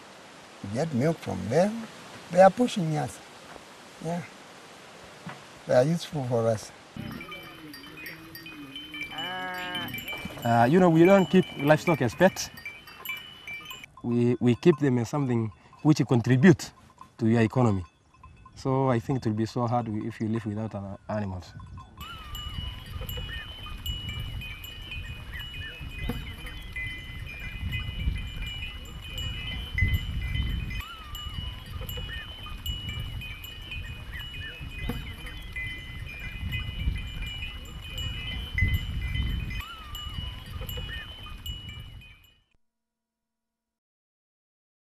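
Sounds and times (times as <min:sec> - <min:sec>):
goats and sheep calling: 0:07.0 - 0:13.8, 0:22.0 - 0:27.6, 0:30.7 - 0:36.4, 0:39.6 - 0:41.3.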